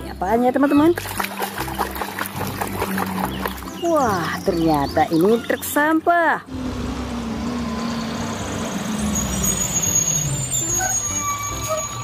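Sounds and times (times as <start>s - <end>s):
truck engine running: 6.5s - 12.0s.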